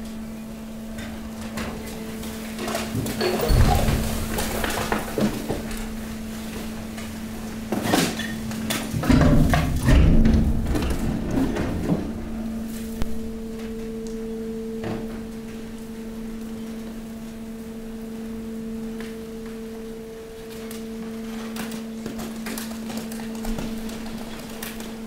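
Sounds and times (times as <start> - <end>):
hydraulic pump humming: 0.0 - 16.6
rubbish rattling: 2.7 - 12.7.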